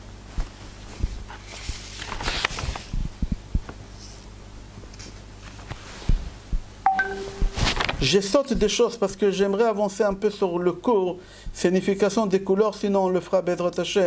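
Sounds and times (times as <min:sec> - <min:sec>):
low steady hum: 0:00.0 - 0:12.6
papers rustling: 0:01.3 - 0:03.0, 0:07.5 - 0:08.2.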